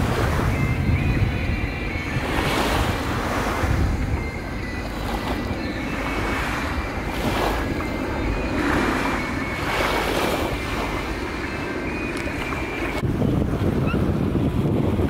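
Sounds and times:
faint high whine: 0.0s - 13.0s
wind on microphone: 0.0s - 15.0s
jet engines roaring: 2.0s - 15.0s.

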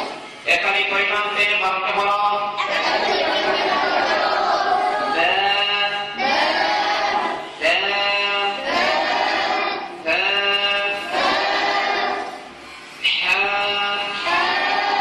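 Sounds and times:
man chanting into a microphone: 7.5s - 8.6s, 10.0s - 11.2s, 13.0s - 14.4s.

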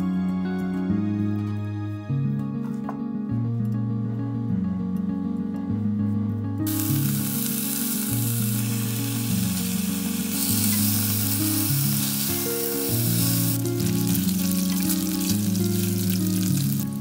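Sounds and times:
background music: 0.0s - 17.0s
pork sizzling in a pot: 6.7s - 17.0s.

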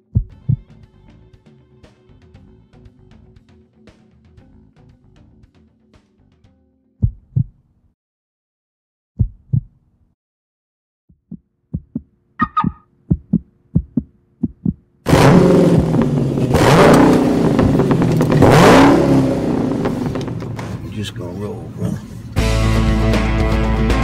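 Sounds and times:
heartbeat thumps: 0.0s - 0.7s, 7.0s - 7.6s, 9.2s - 9.8s, 11.1s - 14.8s, 17.6s - 18.0s
car engine revving: 15.1s - 22.4s.

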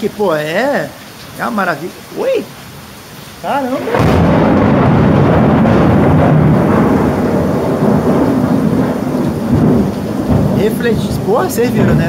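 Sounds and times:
steady rain: 0.0s - 12.0s
thunder rumbling: 3.7s - 12.0s.

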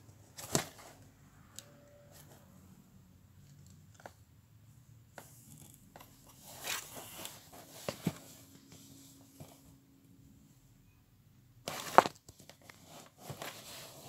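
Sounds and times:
cardboard scratching and rustling: 5.4s - 9.6s, 11.7s - 14.0s.

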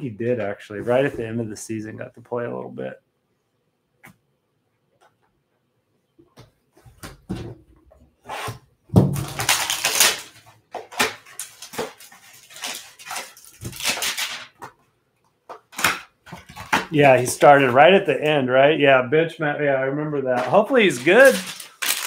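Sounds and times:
cardboard rustling and scraping: 0.3s - 1.4s, 20.4s - 22.0s.

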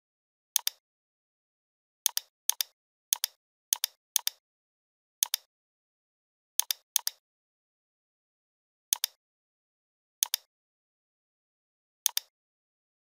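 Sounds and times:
computer mouse button clicking: 10.2s - 10.5s, 12.1s - 12.3s.

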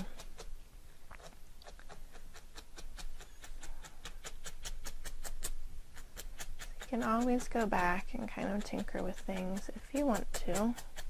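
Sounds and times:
felting needle tapping: 5.9s - 11.0s.

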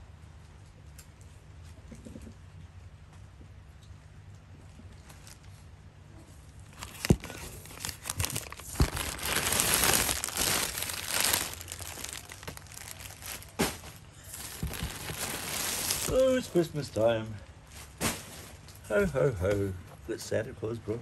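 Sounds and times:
plastic bags crinkling: 6.6s - 16.7s.

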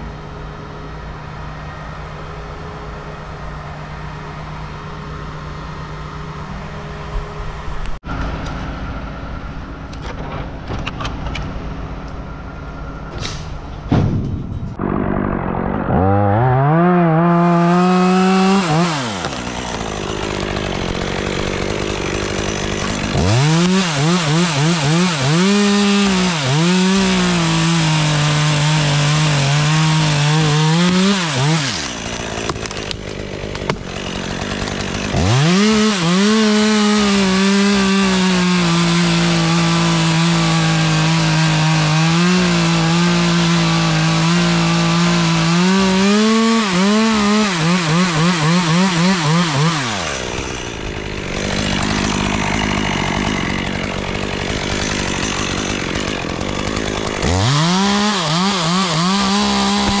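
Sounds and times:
chainsaw cutting wood: 14.7s - 60.0s.

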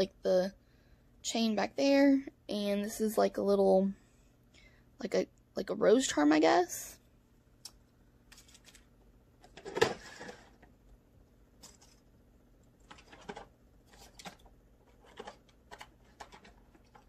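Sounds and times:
small items clicking and rustling: 12.8s - 17.0s.

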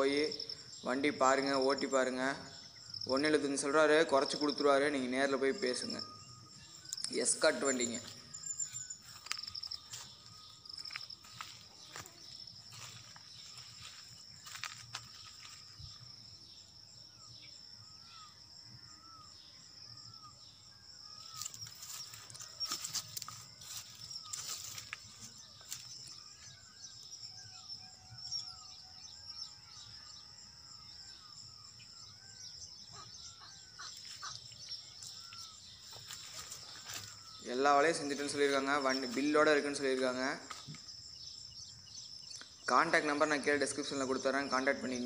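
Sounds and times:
small birds chirping: 0.0s - 45.0s
high-pitched insect drone: 5.4s - 39.2s.

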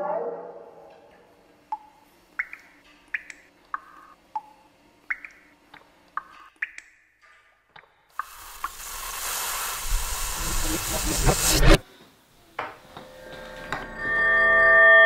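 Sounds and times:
water drops plinking: 1.7s - 7.9s
hiss: 8.2s - 11.8s.

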